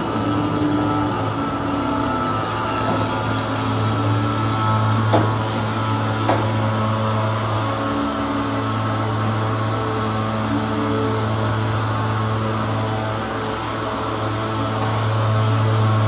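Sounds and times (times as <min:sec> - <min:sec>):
diesel engines idling: 0:00.0 - 0:16.0.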